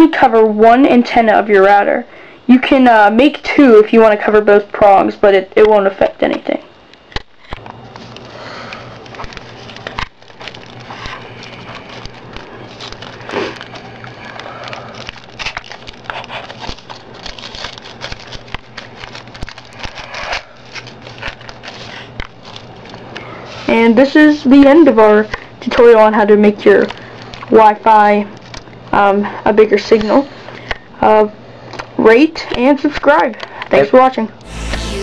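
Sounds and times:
steady low hum: 0.0 - 31.6, 34.3 - 35.0
foil crinkling and rustling: 8.0 - 23.9.

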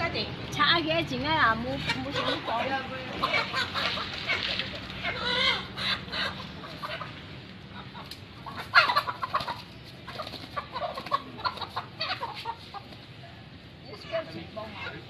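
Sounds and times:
chickens clucking: 1.6 - 15.0
loud chicken call: 5.0 - 7.1.

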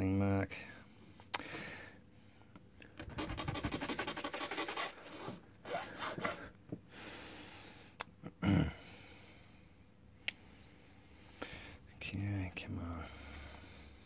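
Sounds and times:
file rasping on metal key: 3.1 - 6.3.

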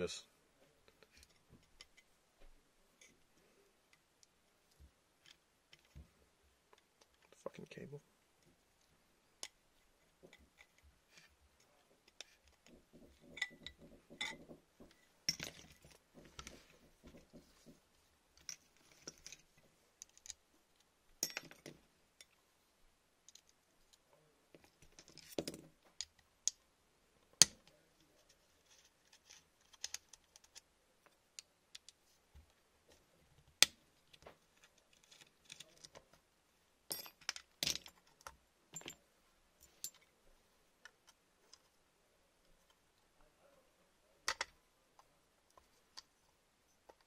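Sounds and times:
gun parts clicking and rattling: 12.1 - 17.8, 18.4 - 20.4, 24.6 - 26.2, 28.6 - 30.7, 33.6 - 36.2, 36.9 - 39.0, 39.6 - 40.1.

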